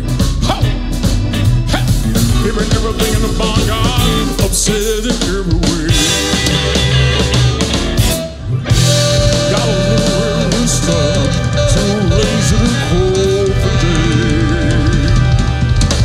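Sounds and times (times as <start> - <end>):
live blues band playing: 0.0 - 16.0
wavering lead line: 5.6 - 15.8.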